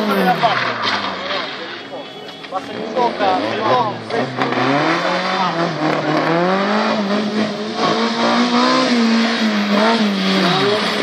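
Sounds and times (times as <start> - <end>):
car engine revving hard: 2.7 - 11.0.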